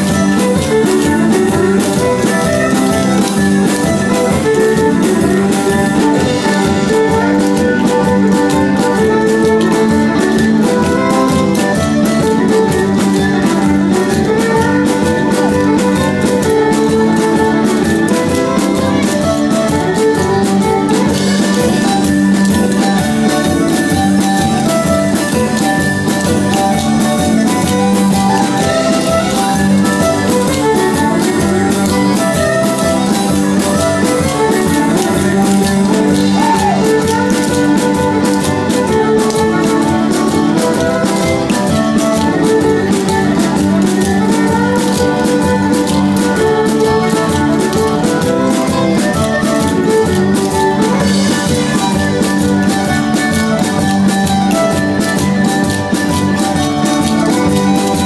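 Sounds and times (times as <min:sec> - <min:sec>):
fiddle: 0:00.0 - 0:58.0
guitar: 0:00.0 - 0:58.0
square-dance music: 0:00.0 - 0:58.0.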